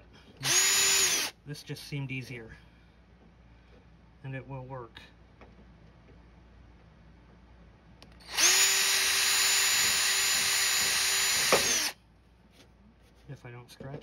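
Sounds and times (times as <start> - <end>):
small power drill drilling plastic: 0.4 - 1.3, 8.1 - 12.0.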